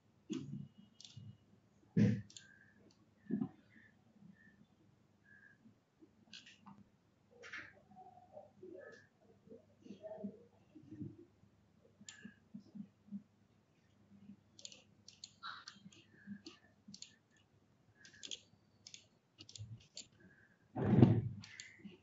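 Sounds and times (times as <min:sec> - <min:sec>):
faint computer mouse clicks: 0:00.3 - 0:01.3, 0:02.1 - 0:03.0, 0:06.3 - 0:06.8, 0:12.0 - 0:12.4, 0:14.6 - 0:20.2, 0:21.4 - 0:21.8.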